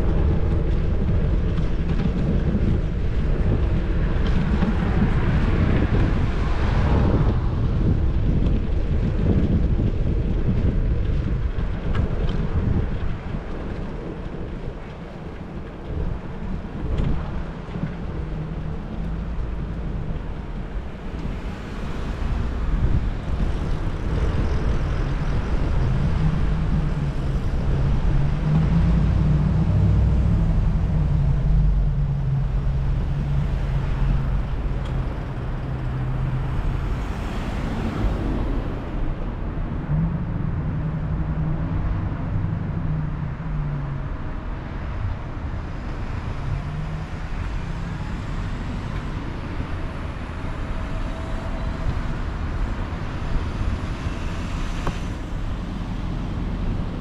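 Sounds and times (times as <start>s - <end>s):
vehicle engines humming: 0.0s - 57.0s.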